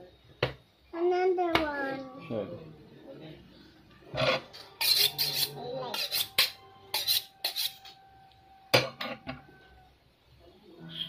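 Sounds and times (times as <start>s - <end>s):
knife scraping on honing steel: 4.2s - 8.0s.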